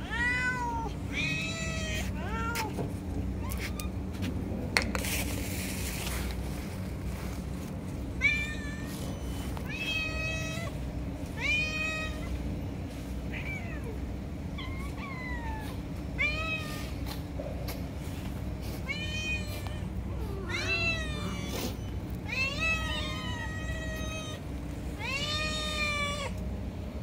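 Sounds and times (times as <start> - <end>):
cats meowing: 0.0 - 4.1, 8.0 - 17.2, 18.6 - 26.5.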